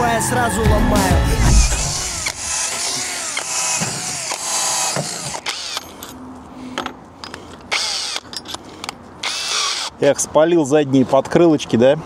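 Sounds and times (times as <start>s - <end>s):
cordless drill boring into metal: 1.6s - 5.9s, 7.7s - 8.4s, 9.2s - 10.0s.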